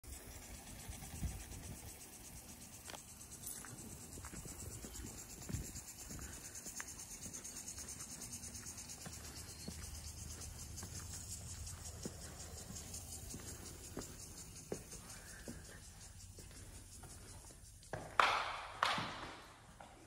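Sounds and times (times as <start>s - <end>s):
insect trill: 0.0s - 18.8s
wind rumble on microphone: 0.7s - 2.0s
soft footsteps: 2.9s - 18.2s.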